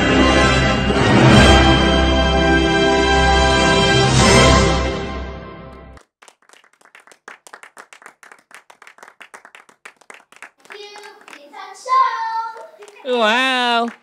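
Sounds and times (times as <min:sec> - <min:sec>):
backing music: 0:00.0 - 0:06.0
audience clapping: 0:06.0 - 0:14.0
child speaking: 0:10.7 - 0:14.0.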